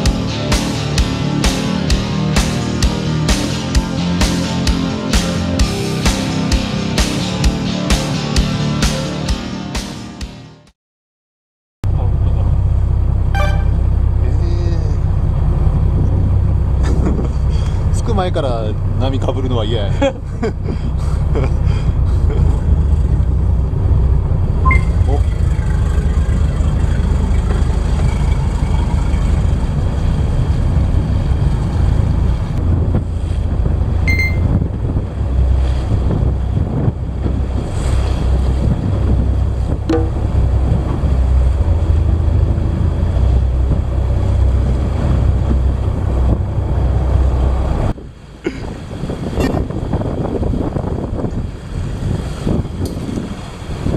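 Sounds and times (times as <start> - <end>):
boat engine rumbling: 0.0 - 8.2, 11.8 - 53.9
water rushing along hull: 0.0 - 8.2, 12.0 - 53.9
brief high tone: 13.4 - 13.8, 24.6 - 25.0, 34.1 - 34.6
wind buffeting microphone: 24.9 - 53.9.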